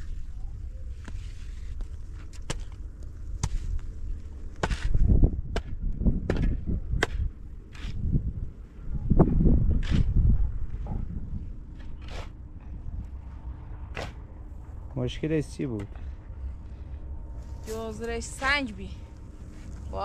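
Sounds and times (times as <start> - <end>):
low rumble: 0.0 - 20.0.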